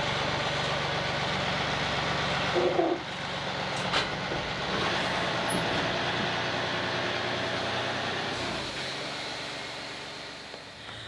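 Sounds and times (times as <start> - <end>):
engine running at low speed: 0.0 - 11.0.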